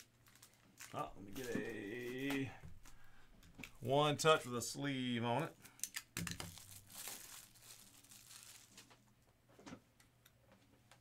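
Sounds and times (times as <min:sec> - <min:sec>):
plastic card sleeve crinkling: 0:00.0 - 0:03.8, 0:05.6 - 0:09.2.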